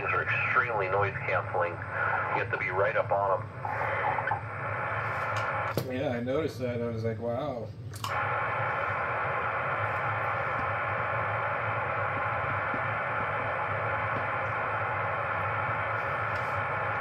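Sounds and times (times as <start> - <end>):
low hum: 0.0 - 17.0
radio static hiss: 0.0 - 17.0.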